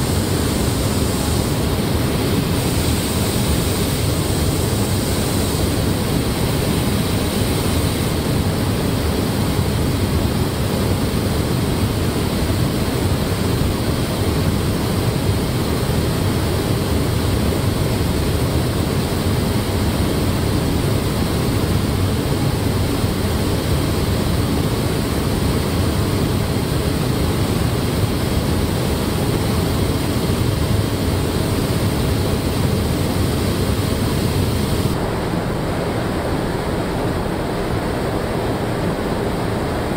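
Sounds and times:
spray guns running: 0:00.0 - 0:08.6
paint booth airflow rushing: 0:00.0 - 0:39.9.

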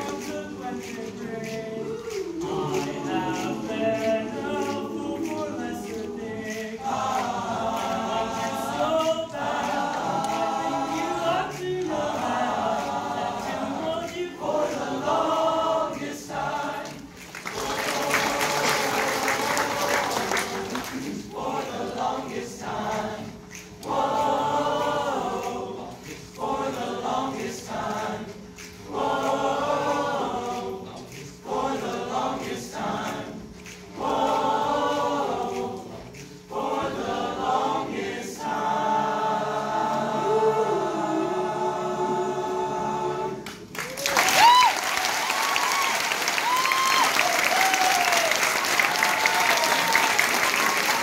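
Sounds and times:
men's choir singing a cappella: 0:00.0 - 0:43.8
applause and cheering: 0:17.0 - 0:21.2, 0:43.4 - 0:51.0.

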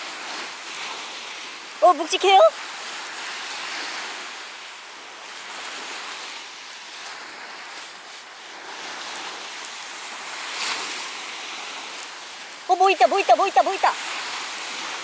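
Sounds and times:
small waves breaking on beach: 0:00.0 - 0:15.0.

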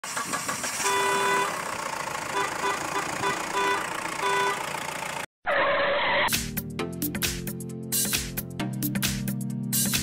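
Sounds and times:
horn tooting: 0:00.8 - 0:01.7, 0:02.3 - 0:04.8.

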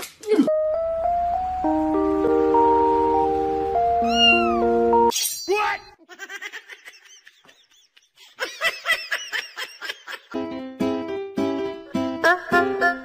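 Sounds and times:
background music: 0:00.5 - 0:05.1, 0:10.3 - 0:13.0
cat meowing: 0:04.0 - 0:04.7.

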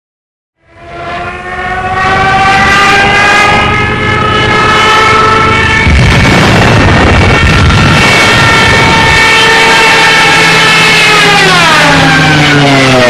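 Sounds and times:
rising swelling tone: 0:00.6 - 0:13.0
low rumble: 0:03.5 - 0:09.3.

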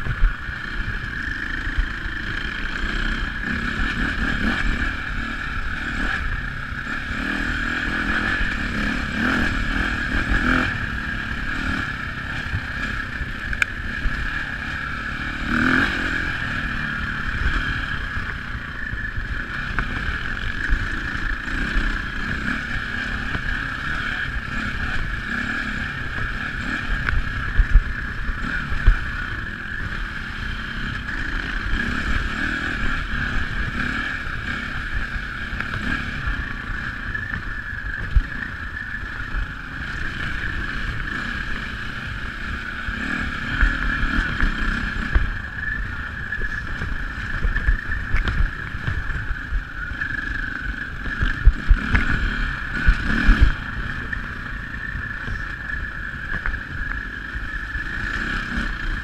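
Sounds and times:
dirt bike engine running: 0:00.0 - 0:59.0.

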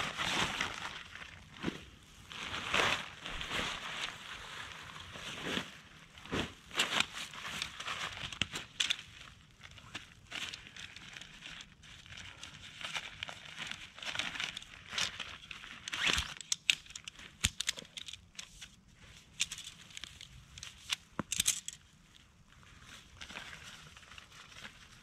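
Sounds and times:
nylon sack rustling: 0:00.0 - 0:08.8
tent poles clicking together: 0:06.8 - 0:09.1, 0:14.1 - 0:21.9.

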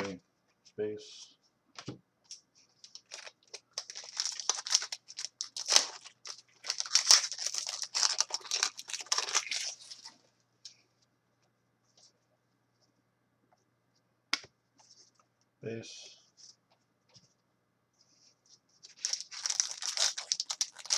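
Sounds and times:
card packs crinkling and tearing: 0:02.8 - 0:10.2, 0:18.9 - 0:20.9.

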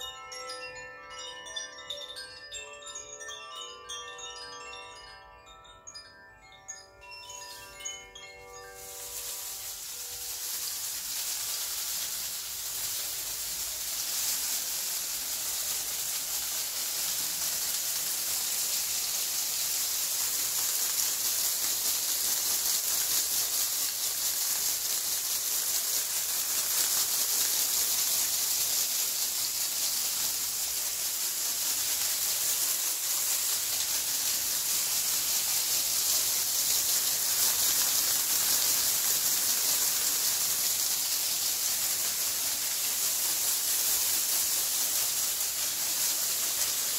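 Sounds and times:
wind chime tones: 0:00.0 - 0:11.2
dried palm leaves rustling: 0:07.0 - 0:46.9.

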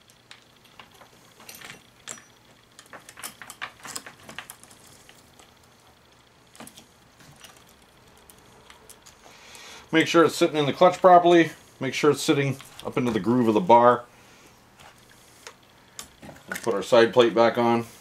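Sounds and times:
chainsaw chain clinking and rattling: 0:00.3 - 0:05.5.

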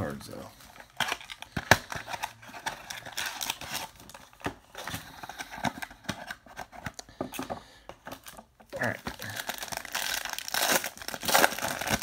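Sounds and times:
foil crinkling: 0:08.8 - 0:12.0.

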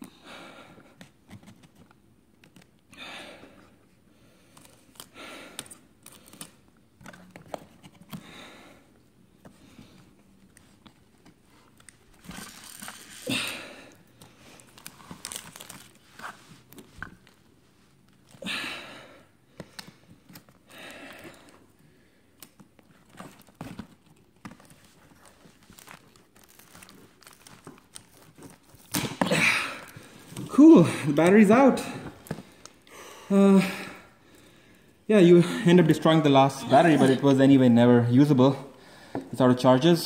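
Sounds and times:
adhesive tape tearing and crackling: 0:11.8 - 0:13.4, 0:14.6 - 0:16.2, 0:24.4 - 0:29.2.

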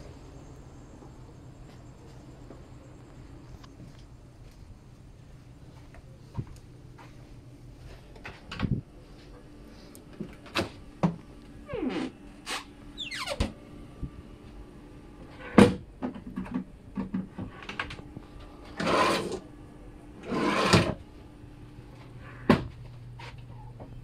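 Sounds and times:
drawer sliding: 0:18.7 - 0:19.4, 0:20.2 - 0:21.0.

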